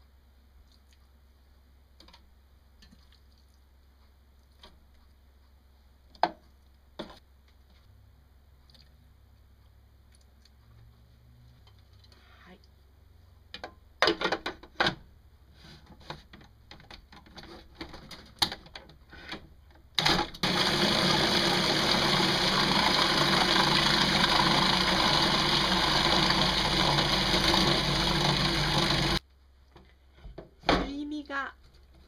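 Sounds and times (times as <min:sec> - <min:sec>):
food processor motor running: 0:20.0 - 0:29.2.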